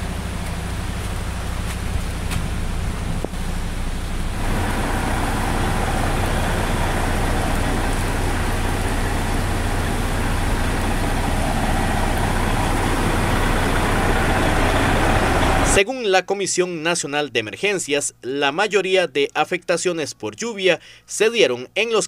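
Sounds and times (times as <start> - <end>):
bus engine idling: 0.0 - 15.8
heavy rain on road: 0.0 - 15.8.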